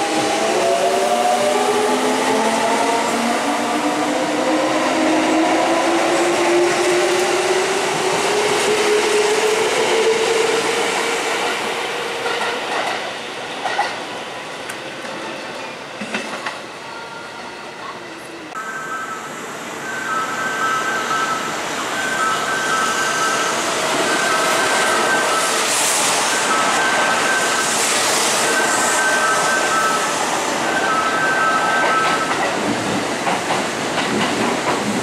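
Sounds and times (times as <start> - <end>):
train wheels rumbling: 22.7 - 35.0.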